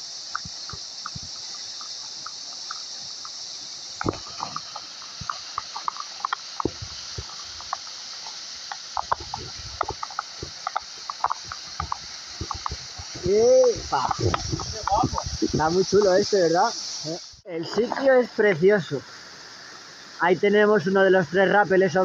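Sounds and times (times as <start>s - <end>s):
small irregular clicks: 0.0s - 16.2s
waterfall rushing: 0.0s - 22.0s.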